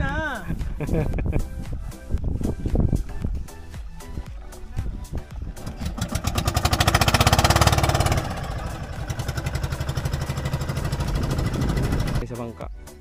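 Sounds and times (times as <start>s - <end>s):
small engine running: 5.6s - 12.2s.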